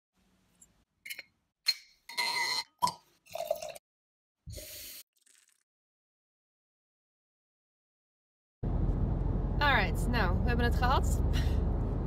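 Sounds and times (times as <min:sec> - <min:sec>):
wine poured into glass: 0:03.3 - 0:03.8, 0:04.6 - 0:05.6.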